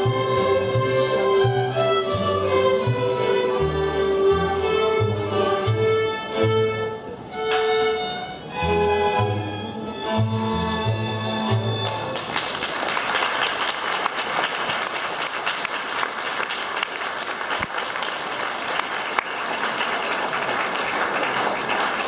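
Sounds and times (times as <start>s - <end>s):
violins and double bass chord: 0.0s - 12.2s
audience applauding: 11.8s - 22.0s.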